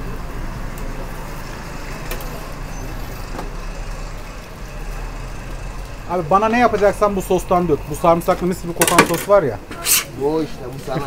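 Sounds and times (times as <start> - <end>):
busy kitchen din: 0.0 - 11.0.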